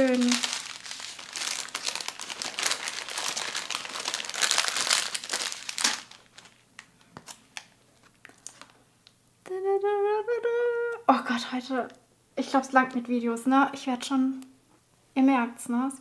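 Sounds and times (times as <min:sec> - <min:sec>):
packaging crinkling: 0:00.0 - 0:08.8.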